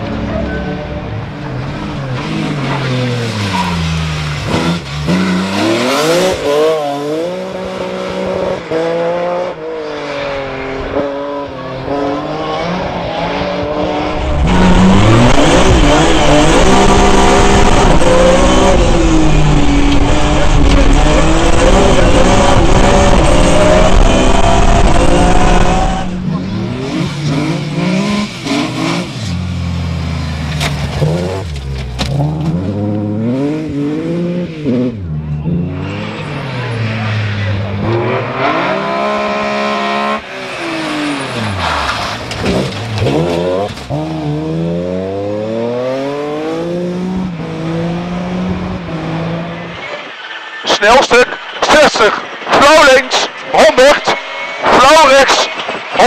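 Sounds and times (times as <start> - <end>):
rally car engine revving: 0.0 - 56.0.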